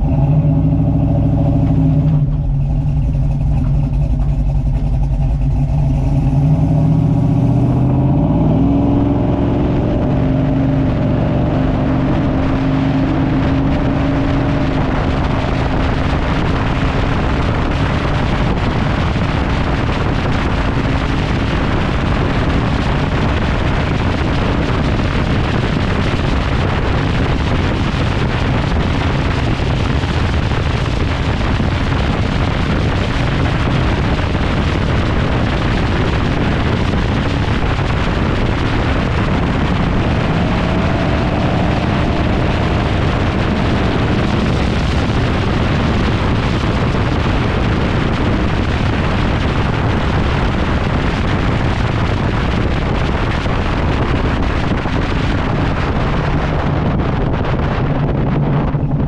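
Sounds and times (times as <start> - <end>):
engine rumble: 0.0 - 59.0
wind buffeting microphone: 0.0 - 59.0.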